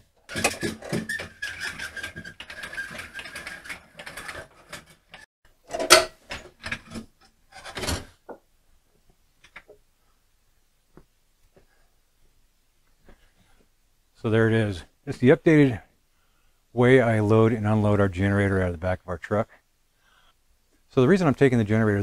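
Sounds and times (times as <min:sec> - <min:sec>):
generator rolling down wooden ramps: 0:00.2 - 0:05.3.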